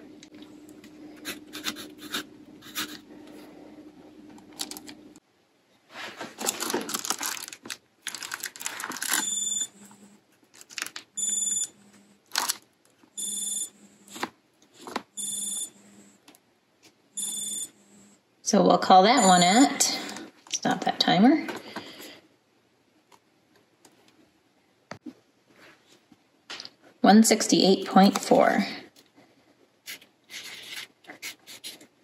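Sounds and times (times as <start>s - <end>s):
foil insulation crinkling: 4.6s - 4.9s, 6.0s - 9.3s, 10.4s - 11.2s, 12.3s - 12.6s
timer alarm beeping: 9.2s - 9.8s, 11.2s - 11.8s, 13.2s - 13.9s, 15.2s - 16.2s, 17.2s - 18.2s, 19.2s - 19.9s.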